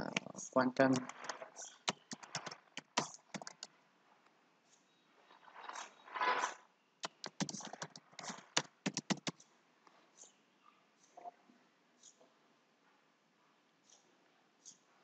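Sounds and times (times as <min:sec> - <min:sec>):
keyboard key clicks: 0:00.9 - 0:03.7, 0:07.0 - 0:09.4.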